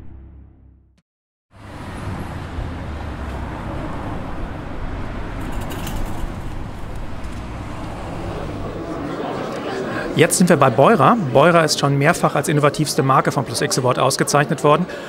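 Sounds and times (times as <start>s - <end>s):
city street traffic: 1.5s - 15.0s.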